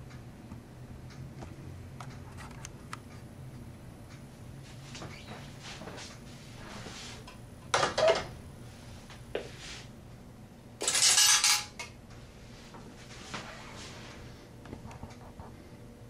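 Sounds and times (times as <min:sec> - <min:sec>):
coins clinking in payphone: 0:10.8 - 0:11.8.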